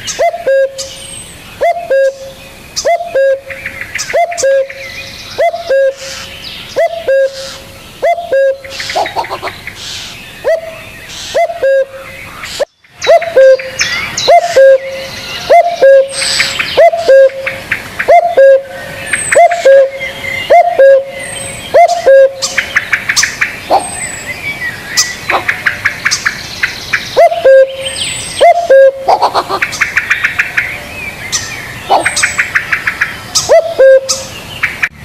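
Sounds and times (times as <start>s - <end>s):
dove cooing: 0.0s - 0.9s, 1.6s - 4.8s, 5.4s - 9.6s, 10.4s - 12.2s, 13.0s - 22.6s, 23.7s - 24.0s, 27.2s - 29.7s, 31.9s - 32.3s, 33.4s - 34.3s
small birds chirping: 0.0s - 35.0s.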